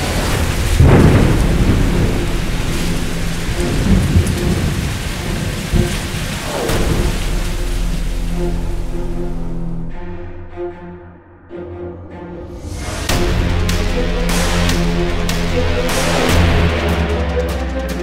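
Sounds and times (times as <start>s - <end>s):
thunder clap rumbling: 0.0s - 8.9s
heavy rain: 0.0s - 9.9s, 12.6s - 18.0s.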